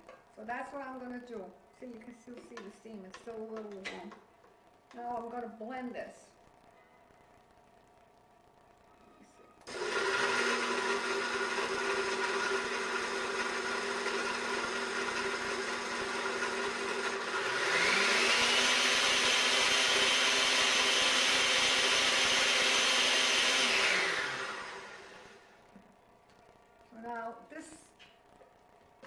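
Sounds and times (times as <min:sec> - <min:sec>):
blender motor humming: 0:09.6 - 0:25.6.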